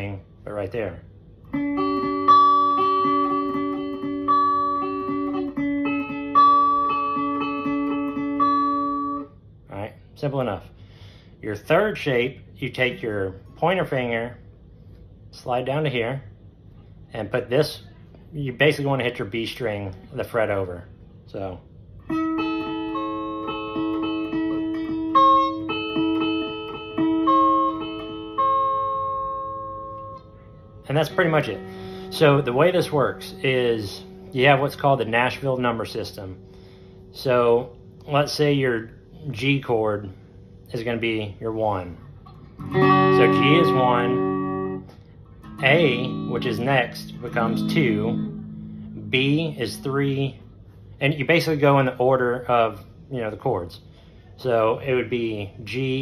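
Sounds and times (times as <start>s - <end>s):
clean electric guitar arpeggio: 1.5s - 9.3s, 22.1s - 38.2s, 42.3s - 50.3s.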